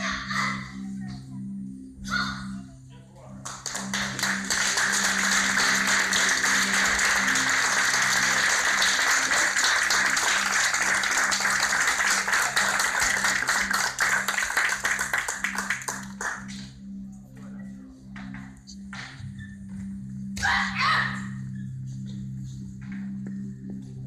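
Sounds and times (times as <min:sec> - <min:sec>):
background music low notes: 0:00.0 - 0:24.0
audience applauding: 0:03.4 - 0:16.5.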